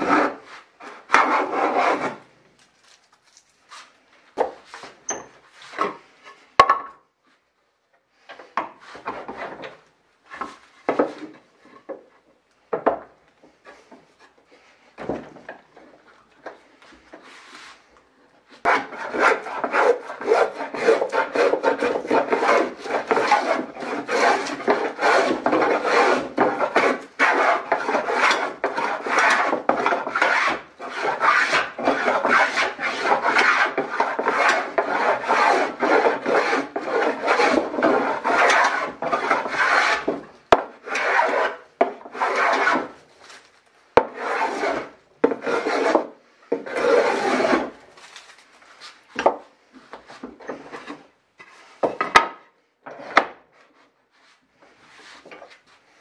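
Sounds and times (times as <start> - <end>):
hand plane shaving wood: 0.0 - 2.3, 18.5 - 47.8.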